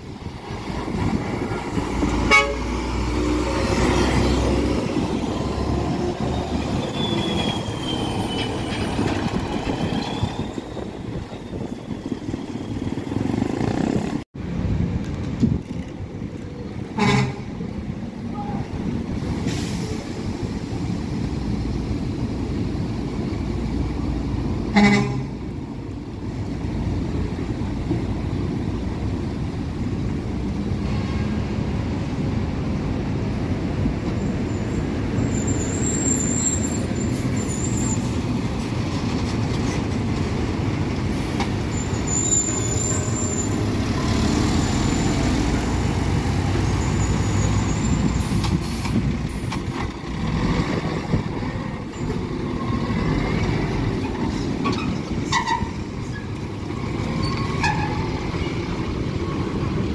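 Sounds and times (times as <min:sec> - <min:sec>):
truck engines rumbling: 0:00.0 - 0:59.9
horn toot: 0:02.3 - 0:02.8.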